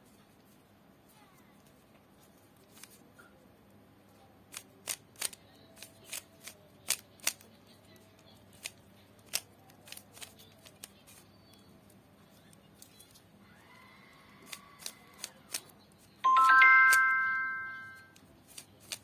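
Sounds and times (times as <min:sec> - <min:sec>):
puzzle cube clicking as twisted: 0:04.5 - 0:07.5, 0:08.6 - 0:11.2, 0:14.5 - 0:15.7, 0:18.1 - 0:19.0.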